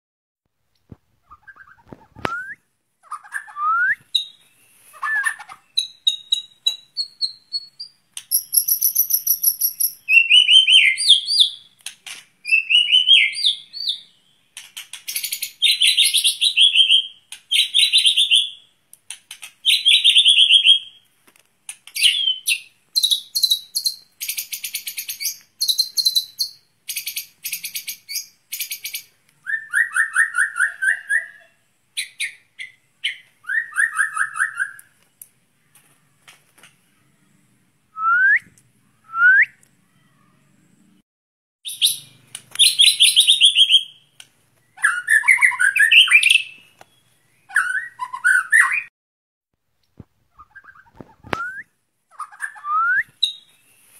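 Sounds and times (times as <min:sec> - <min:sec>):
bird singing whistles and trills: 0:01.2 - 0:11.7, 0:12.4 - 0:14.3, 0:15.1 - 0:18.7, 0:19.6 - 0:21.0, 0:22.0 - 0:34.9, 0:37.9 - 0:39.6, 0:41.7 - 0:48.9, 0:50.3 - 0:53.7.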